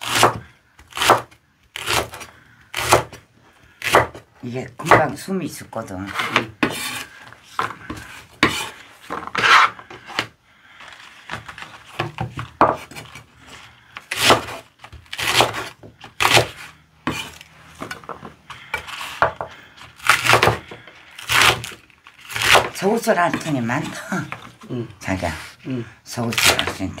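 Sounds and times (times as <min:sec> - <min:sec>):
knife slicing green onion: 0:00.0 - 0:03.2, 0:03.8 - 0:04.2, 0:06.1 - 0:07.2, 0:14.0 - 0:17.4, 0:21.2 - 0:24.0.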